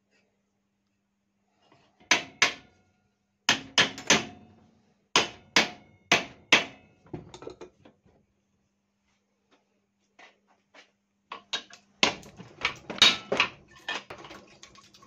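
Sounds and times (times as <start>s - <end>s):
hammer striking steel tubing: 2.0s - 2.7s, 3.5s - 4.4s, 5.2s - 6.8s.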